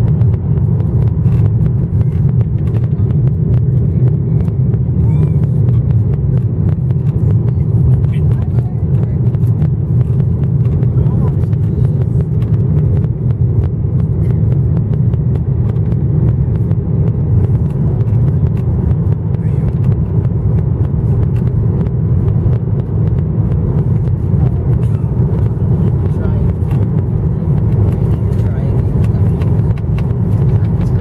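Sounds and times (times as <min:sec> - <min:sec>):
jet engine cabin rumble: 0:00.0 - 0:31.0.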